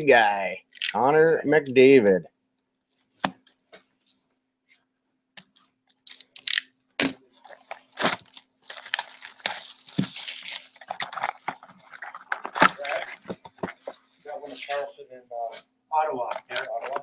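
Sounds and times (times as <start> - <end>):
plastic wrap crinkling and tearing: 5.9 - 14.8.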